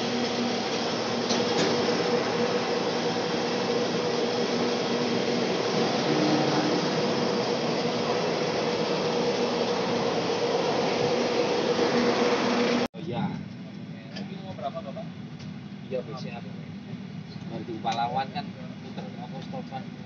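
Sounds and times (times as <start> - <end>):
bus engine idling: 0.0 - 12.8
air conditioning hum: 0.0 - 20.0.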